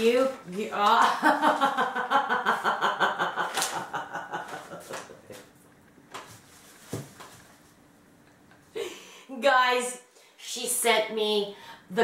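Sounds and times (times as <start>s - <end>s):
woman laughing hard: 1.2s - 5.4s.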